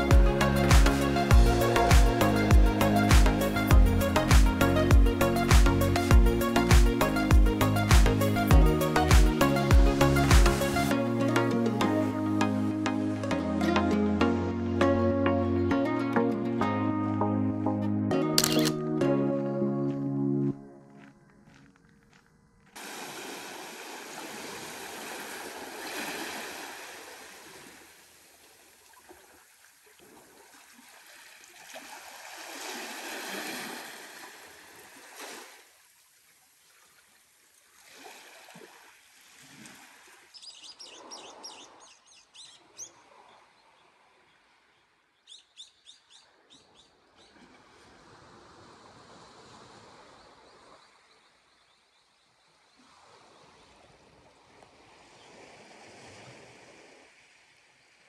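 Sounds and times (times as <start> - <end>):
small waves washing onto shore: 22.8 - 41.9, 47.3 - 51.1, 52.7 - 58.0
bird chirping: 45.2 - 47.3.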